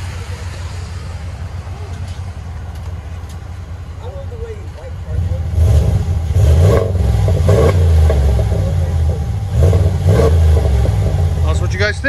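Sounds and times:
engine revving: 5.0 - 12.0.

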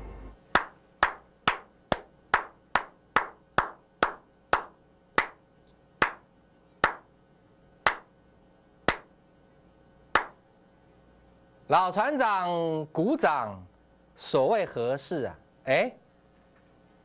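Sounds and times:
man clapping hands: 0.5 - 5.4, 6.0 - 7.1, 7.8 - 8.1, 8.9 - 9.1, 10.1 - 10.4.

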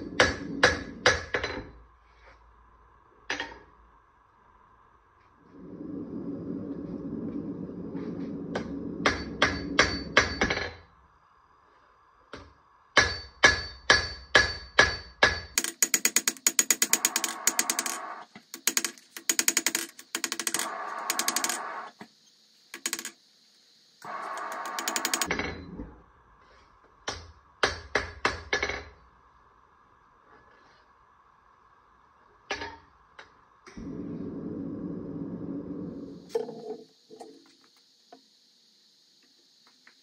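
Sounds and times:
hammer striking blade on anvil: 13.0 - 16.6.

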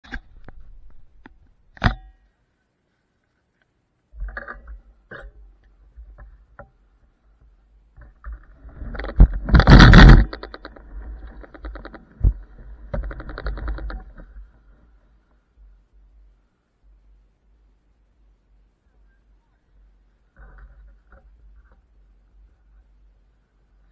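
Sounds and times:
scooter frame rattling: 8.0 - 14.7.

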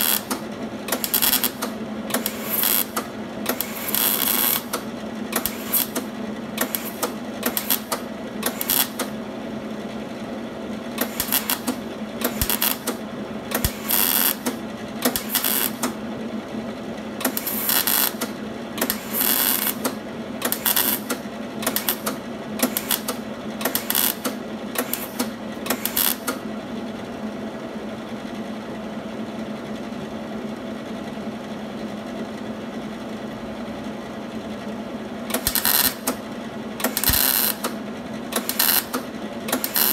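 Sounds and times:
welding bursts: 0.0 - 4.8, 5.4 - 9.2, 11.0 - 15.9, 17.3 - 26.3, 35.3 - 36.2, 36.8 - 37.8, 38.4 - 39.0, 39.6 - 39.9
steady low hum: 0.0 - 39.9.

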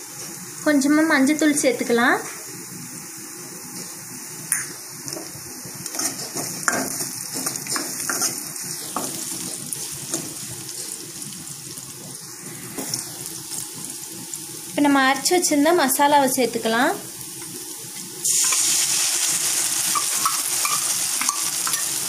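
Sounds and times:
onions sizzling in hot oil: 0.0 - 22.0
ladle scraping and clicking on pan: 20.0 - 21.9.

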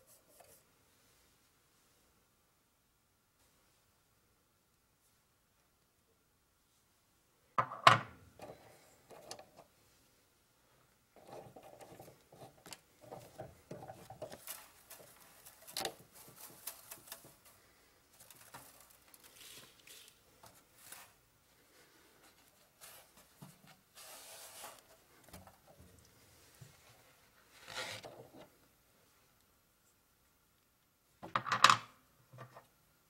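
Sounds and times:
rustling: 8.5 - 28.5.

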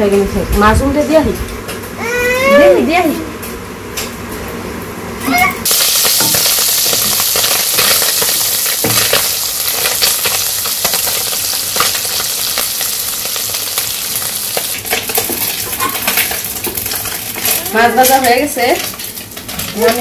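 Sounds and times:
fish sizzling in hot oil: 5.6 - 20.0.

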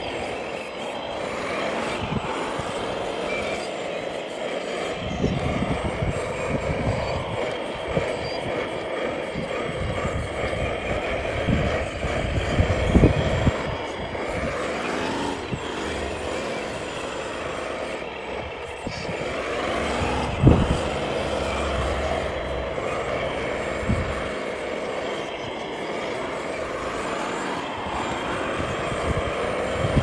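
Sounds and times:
motor and hydraulic drone: 0.0 - 30.0.

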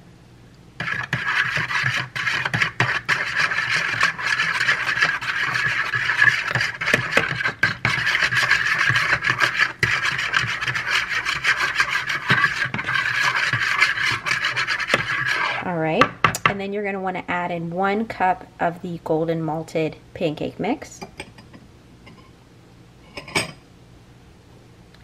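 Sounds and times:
fork beating egg in bowl: 0.8 - 15.6.

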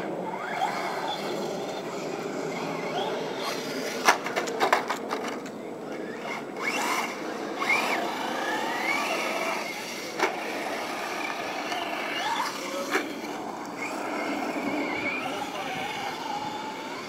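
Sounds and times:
electric motor whine: 5.8 - 17.0.

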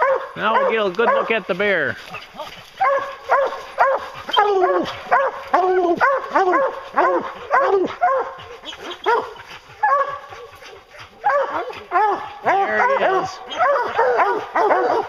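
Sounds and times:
hounds baying: 0.0 - 15.0.

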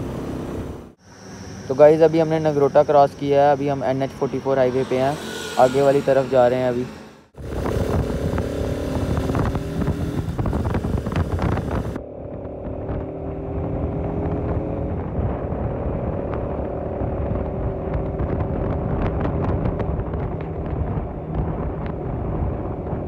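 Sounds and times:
motorcycle engine running: 7.4 - 23.0
wind noise on microphone: 7.4 - 23.0.

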